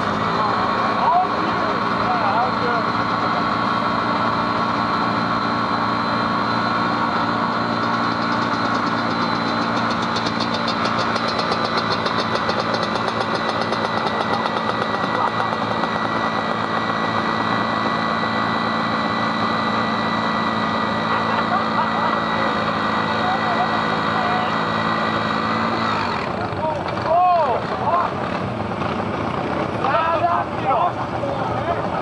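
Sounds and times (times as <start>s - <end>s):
atv engine at high revs: 0.0s - 32.0s.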